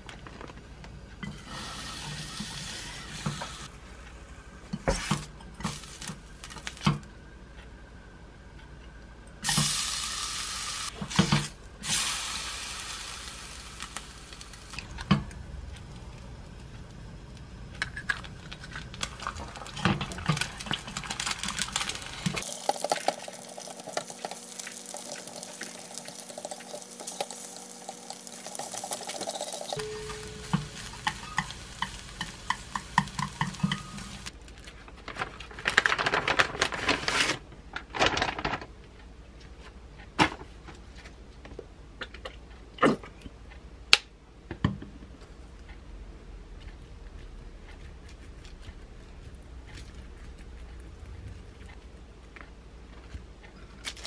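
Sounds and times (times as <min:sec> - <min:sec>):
meat sizzling in a pan: 0:09.4 - 0:10.9, 0:11.8 - 0:14.8, 0:21.8 - 0:34.3.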